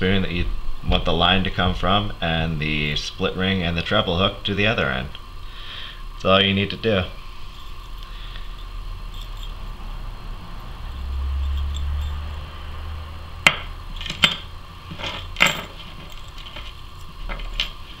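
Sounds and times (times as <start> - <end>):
low handling rumble: 6.1 - 18.0
metallic clinks: 7.4 - 12.5, 13.9 - 17.8.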